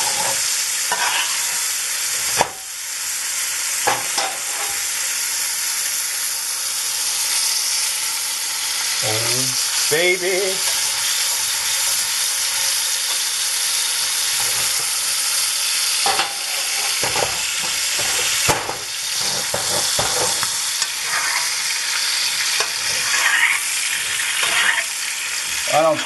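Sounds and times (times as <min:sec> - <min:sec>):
spoon clinking and scraping pan: 0:00.0 - 0:01.6, 0:03.9 - 0:04.8, 0:16.0 - 0:21.5, 0:24.2 - 0:24.9
steak sizzling in butter: 0:00.0 - 0:26.0.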